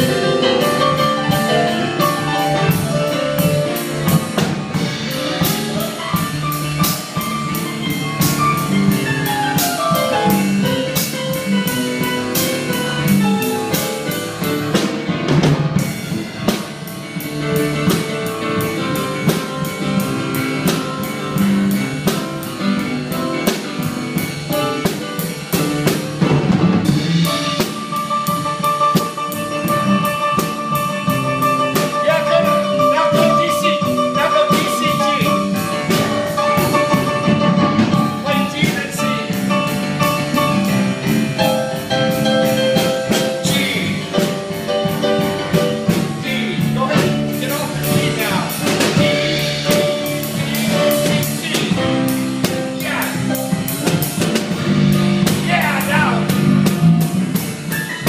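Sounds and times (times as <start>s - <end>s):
drum kit steady beat: 0.0s - 58.0s
electric keyboard: 0.0s - 58.0s.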